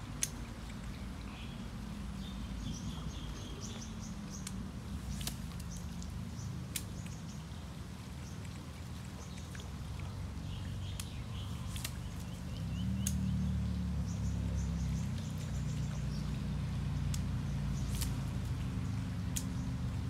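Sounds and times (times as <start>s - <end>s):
steady low rumble: 0.0s - 20.0s
bird chirping: 0.9s - 7.6s, 10.4s - 18.2s.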